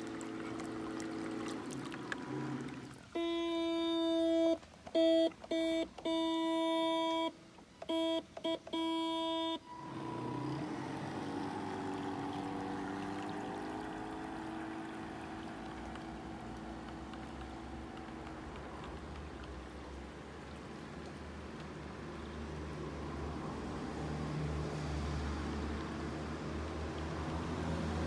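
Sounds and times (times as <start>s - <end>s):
water rushing: 0.0s - 3.2s, 9.7s - 28.0s
faint motor hum: 0.0s - 21.2s
horn blasts: 3.1s - 7.3s, 7.9s - 10.1s.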